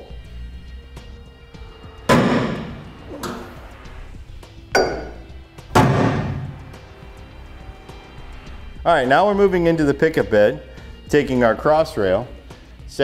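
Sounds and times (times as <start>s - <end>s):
center punch striking steel: 2.1s - 3.4s, 4.8s - 6.8s.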